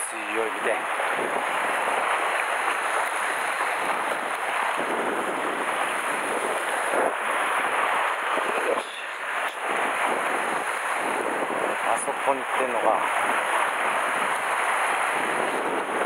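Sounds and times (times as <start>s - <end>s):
surf breaking on rocks: 0.0s - 16.0s
wind buffeting microphone: 0.0s - 16.0s.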